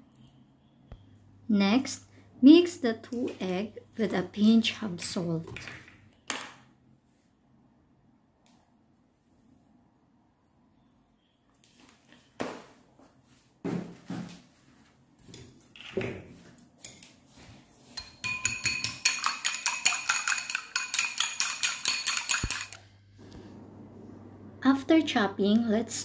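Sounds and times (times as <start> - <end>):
chopsticks clinking in ceramic bowl: 18.0 - 22.8.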